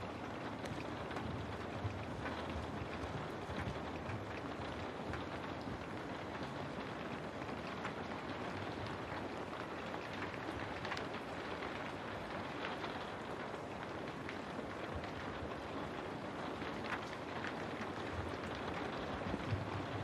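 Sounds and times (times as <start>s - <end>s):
rain drop ticks: 0.0s - 20.0s
steady rain falling: 0.0s - 20.0s.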